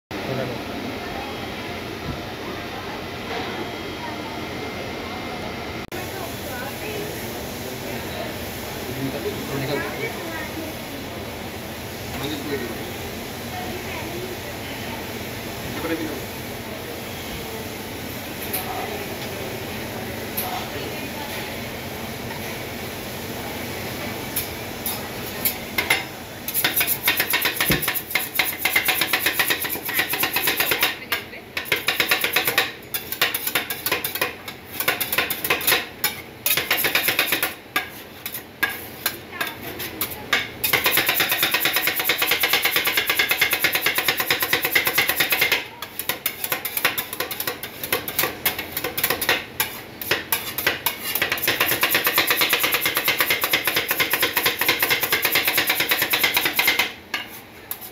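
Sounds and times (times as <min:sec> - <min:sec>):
metal spatulas chopping on metal plate: 0:25.4 - 0:57.9.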